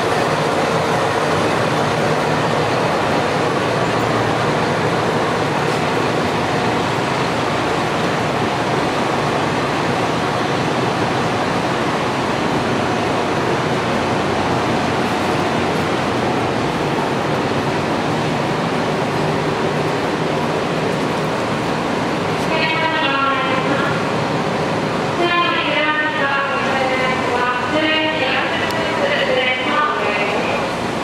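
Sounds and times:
diesel railcar engine idling: 0:00.0 - 0:31.0.

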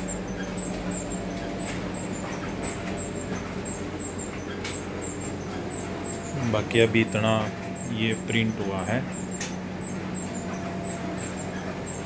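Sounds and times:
printer mechanical hum: 0:00.0 - 0:12.0.

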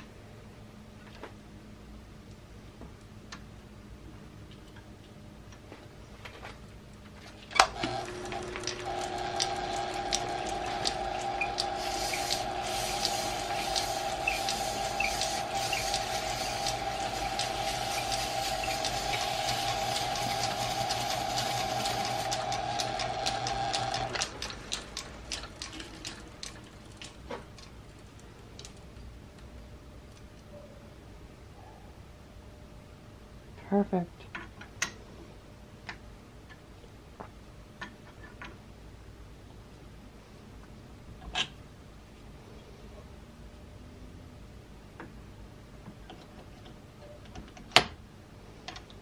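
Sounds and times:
lathe spinning down clicks: 0:07.6 - 0:27.1
metal lathe humming and whining: 0:07.7 - 0:24.3
abrasive strip hissing: 0:11.2 - 0:22.5.

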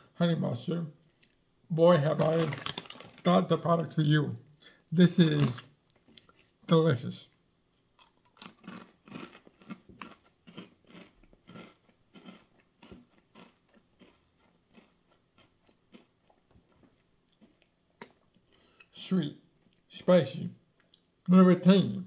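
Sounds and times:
person chewing potato chips: 0:02.1 - 0:03.5, 0:05.2 - 0:06.6, 0:07.3 - 0:19.9.

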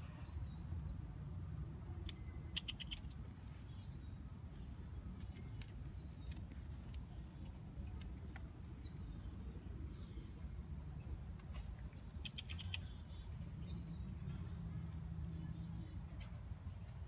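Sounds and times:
squirrel claws scratching: 0:02.5 - 0:03.5, 0:05.2 - 0:08.8, 0:11.3 - 0:13.2.

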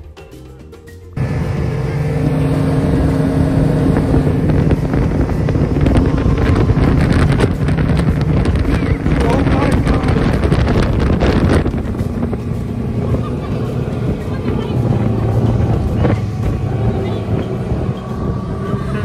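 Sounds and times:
boat engine humming: 0:01.0 - 0:19.0
wind buffeting microphone: 0:01.2 - 0:19.0.

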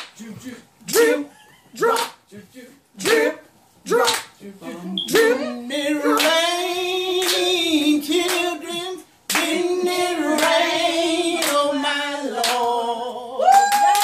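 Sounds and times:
hand claps on the beat: 0:00.0 - 0:00.2, 0:04.0 - 0:04.4, 0:06.2 - 0:06.4, 0:07.2 - 0:08.5, 0:09.3 - 0:09.6, 0:10.3 - 0:10.6, 0:11.4 - 0:11.7, 0:12.4 - 0:12.8, 0:13.5 - 0:14.0
voices singing a spiritual: 0:00.0 - 0:14.0.

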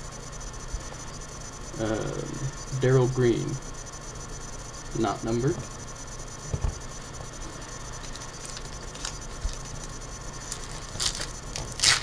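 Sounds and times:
steady low hum: 0:00.0 - 0:12.0
foil wrapper crinkling: 0:08.0 - 0:09.7, 0:10.4 - 0:12.0
handling trading cards: 0:08.1 - 0:09.8, 0:10.4 - 0:12.0.

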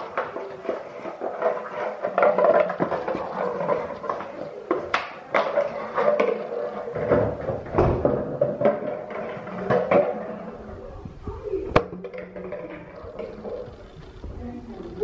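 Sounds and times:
plastic bottle crinkling on tiles: 0:00.0 - 0:10.0.

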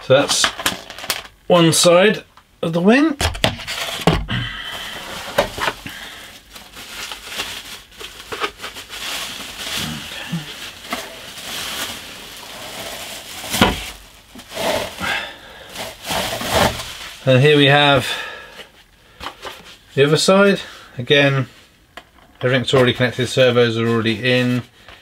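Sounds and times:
bubble wrap crinkling: 0:03.6 - 0:18.0.

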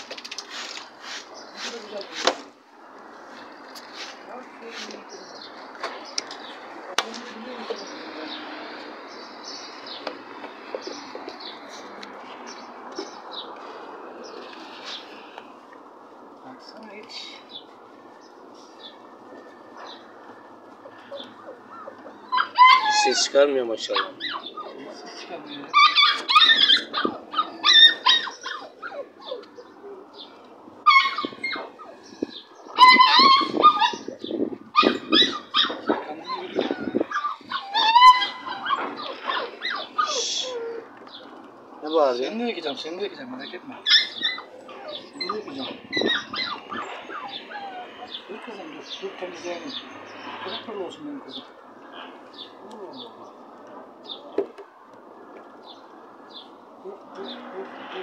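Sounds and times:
small birds chirping: 0:00.2 - 0:58.0
puppies crying and yelping: 0:18.9 - 0:41.8, 0:43.7 - 0:50.6.

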